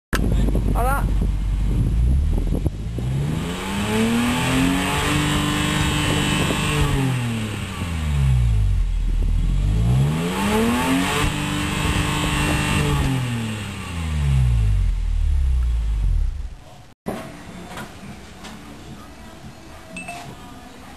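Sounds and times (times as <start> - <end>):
car engine revving: 1.2 - 16.7.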